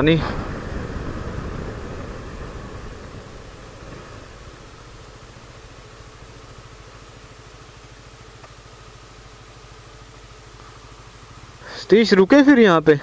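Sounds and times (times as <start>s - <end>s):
motorcycle engine idling: 0.0s - 13.0s.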